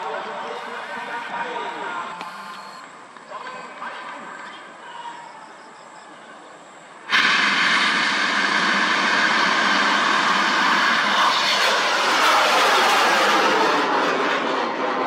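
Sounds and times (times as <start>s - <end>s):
rocket roaring: 7.1s - 15.0s.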